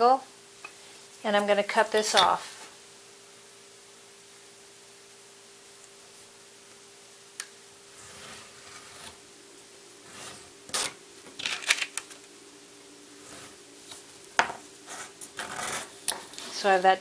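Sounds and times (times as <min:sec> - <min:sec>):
craft knife scratching through paper: 0:14.9 - 0:16.6.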